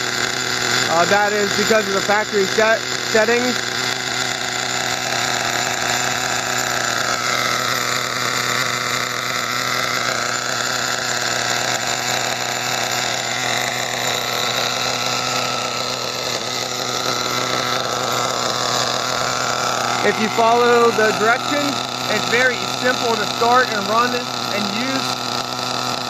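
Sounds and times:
nitro engine idling: 0.0 - 26.0.

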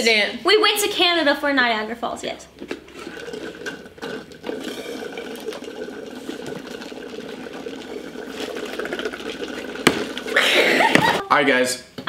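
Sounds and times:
drinks slurped through straws: 2.5 - 11.1.

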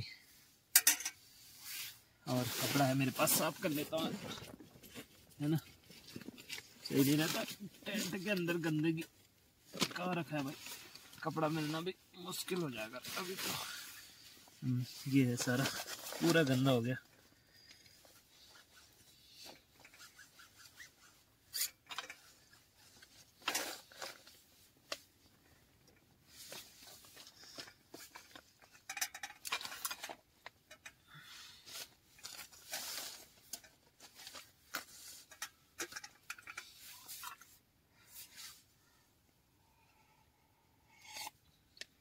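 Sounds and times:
cloth wiping tent floor: 1.4 - 4.3.

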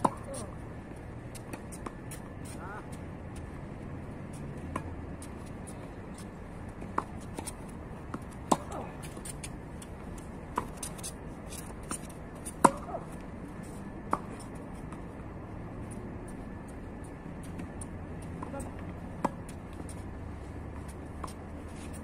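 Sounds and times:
tennis balls struck by rackets: 0.0 - 0.6, 6.1 - 13.2, 14.0 - 15.2, 16.6 - 20.1.

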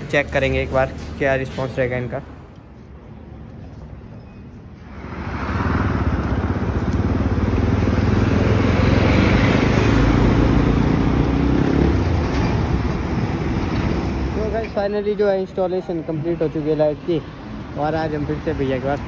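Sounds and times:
motorcycle engine riding by: 5.2 - 12.2.

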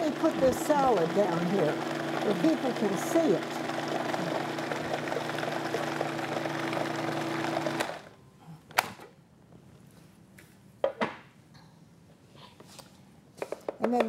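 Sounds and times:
food processor motor hum: 0.0 - 8.2.

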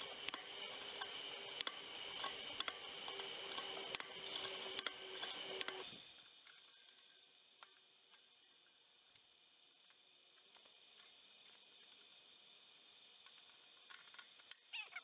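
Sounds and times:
torque wrench clicking: 0.0 - 5.9
faint steady hum: 0.0 - 15.0.

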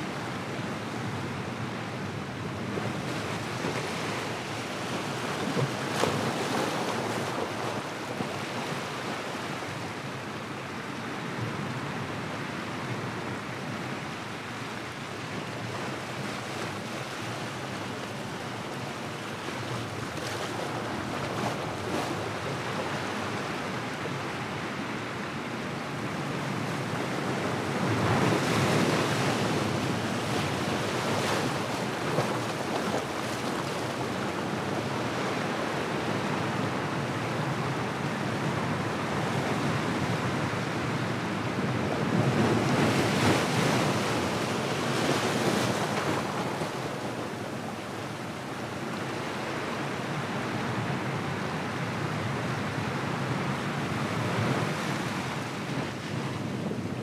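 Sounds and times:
waves washing over rocks: 27.1 - 37.2, 37.8 - 50.8.

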